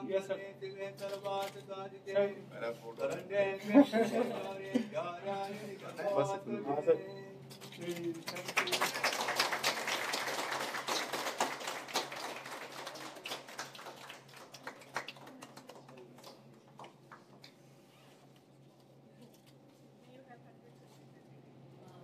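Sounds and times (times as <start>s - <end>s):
group clapping: 7.6s - 17.6s.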